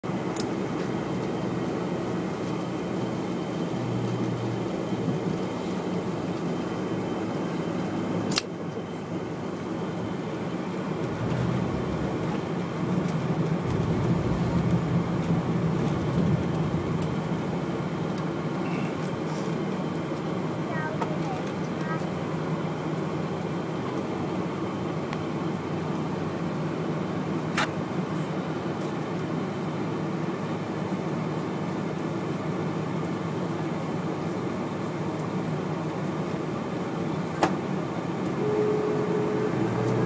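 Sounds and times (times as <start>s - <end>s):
jet engine hum: 0.1s - 20.6s, 37.9s - 40.0s
cabin air noise: 10.5s - 19.7s.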